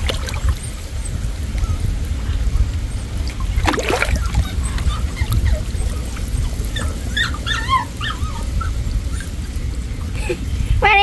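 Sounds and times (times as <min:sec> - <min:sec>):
muddy water splashing: 0:00.0 - 0:00.9, 0:03.1 - 0:07.2
steady low rumble: 0:00.0 - 0:11.0
dog whimpering and yipping: 0:00.4 - 0:10.4.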